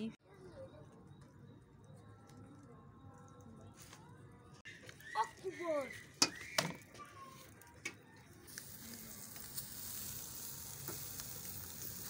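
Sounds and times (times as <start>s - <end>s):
meat sizzling on grill: 5.8s - 12.0s.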